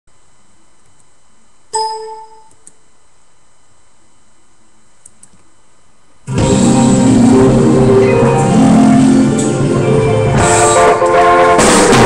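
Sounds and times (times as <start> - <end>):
bell-like ding: 1.8 - 2.5.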